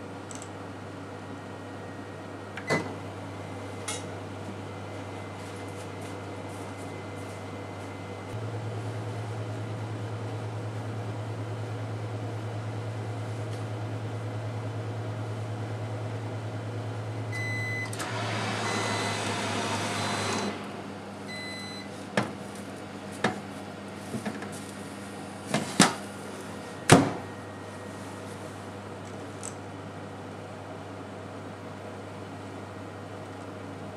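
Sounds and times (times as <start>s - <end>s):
steam oven humming: 0.0s - 33.9s
oven beeps: 1.1s - 3.8s, 17.2s - 20.6s, 21.2s - 22.0s.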